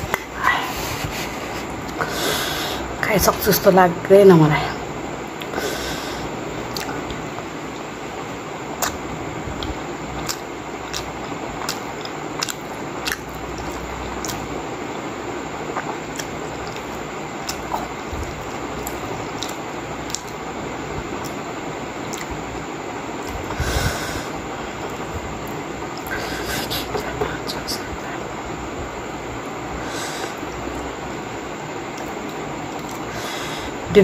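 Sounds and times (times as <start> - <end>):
steady hiss: 0.0 - 34.0
person chewing wetly: 6.7 - 7.2, 9.6 - 14.5, 15.7 - 20.4, 22.0 - 22.4, 32.0 - 33.2.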